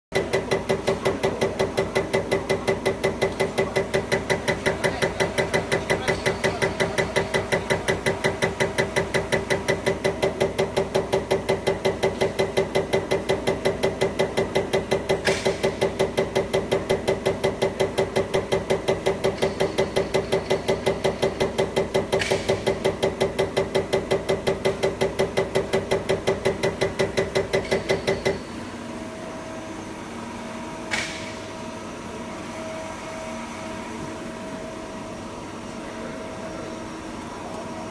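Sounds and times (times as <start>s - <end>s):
test bench hum: 0.1s - 37.9s
fuel injector rapid ticking: 0.2s - 28.4s.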